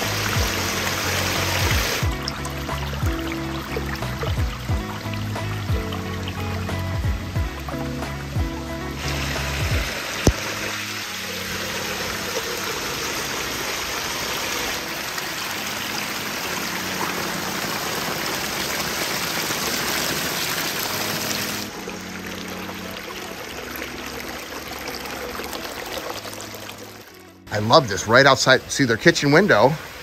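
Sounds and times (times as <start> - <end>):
water rushing over rocks: 0.0 - 30.0.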